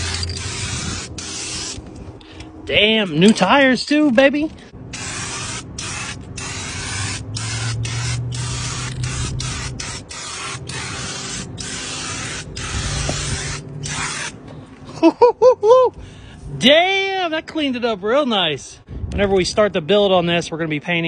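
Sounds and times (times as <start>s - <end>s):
aerosol spray can hissing: 0.0s - 1.8s, 5.0s - 14.3s.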